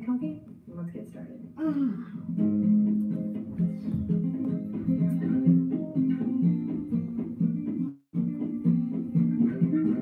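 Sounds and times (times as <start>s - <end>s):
plucked guitar melody: 2.2s - 10.0s.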